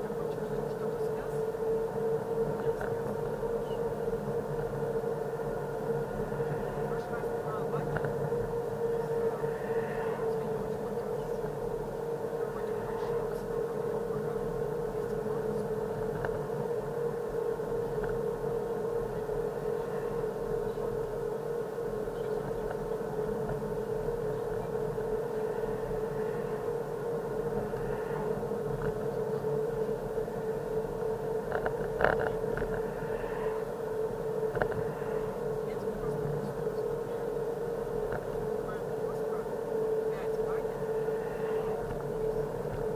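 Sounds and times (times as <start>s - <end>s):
car engine and tyre noise: 0.1s - 42.9s.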